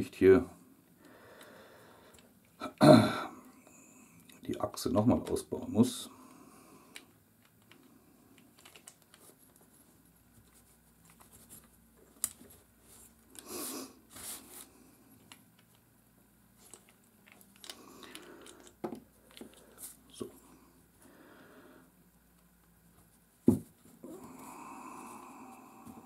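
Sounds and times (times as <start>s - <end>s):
small metal parts clicking: 8.4s - 9.2s, 16.6s - 19.7s.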